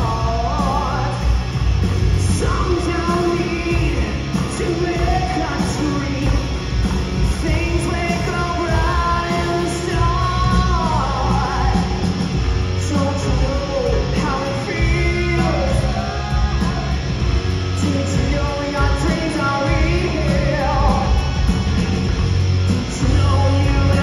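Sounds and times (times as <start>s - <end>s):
bass guitar: 0.0s - 24.0s
bending lead guitar melody: 0.0s - 24.0s
distorted electric guitars: 0.0s - 24.0s
drum kit: 0.0s - 24.0s.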